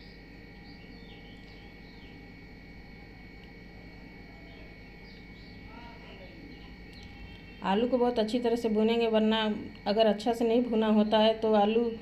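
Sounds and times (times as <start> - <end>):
small birds chirping: 0.0 - 2.3, 4.4 - 8.1
faint high whine: 0.0 - 12.0
steady low hum: 0.0 - 12.0.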